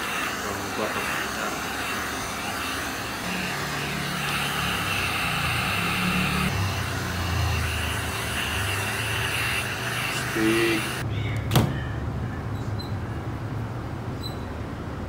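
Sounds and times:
pet grooming vacuum running: 0.0 - 11.0.

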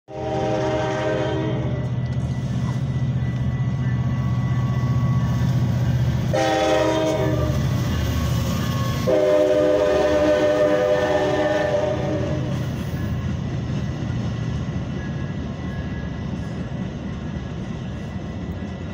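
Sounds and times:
train horn blasts: 0.1 - 2.1, 6.2 - 8.0, 8.7 - 12.8
train rumbling: 0.1 - 18.9.

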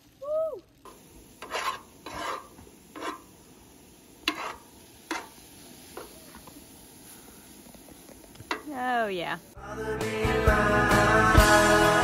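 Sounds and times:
metal tongs scraping a pan: 0.9 - 3.4, 4.2 - 6.4, 8.4 - 8.8.

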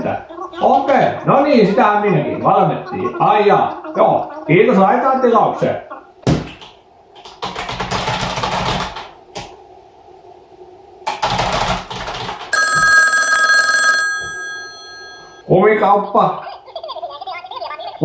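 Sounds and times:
computer keyboard typing: 6.4 - 9.5, 11.1 - 13.0
mobile phone ringtone: 12.5 - 15.5.

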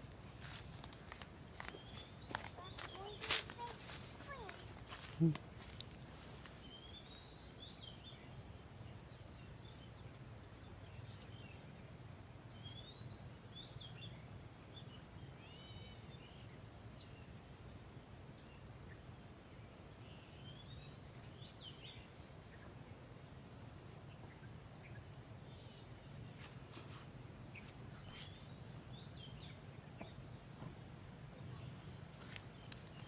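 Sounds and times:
small birds chirping and whistling: 1.6 - 9.6, 15.4 - 16.3.

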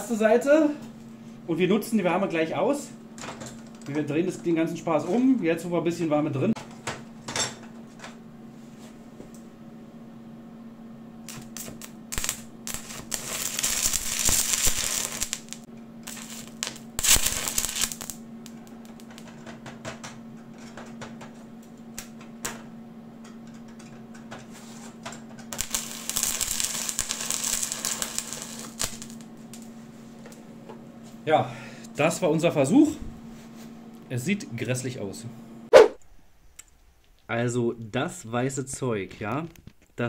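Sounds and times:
steady hum: 0.0 - 38.4
welding arc crackling: 11.2 - 19.4, 25.5 - 29.7.

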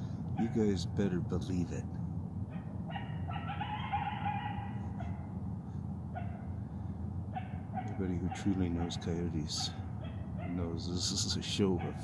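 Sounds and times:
steady low hum: 0.0 - 12.0
distant coyote-like howl: 0.3 - 0.8, 2.5 - 10.9, 11.5 - 12.0.

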